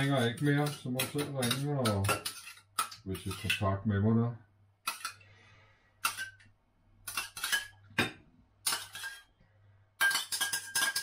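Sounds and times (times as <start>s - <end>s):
cutlery clinking on plates: 8.7s - 9.3s, 10.0s - 11.0s.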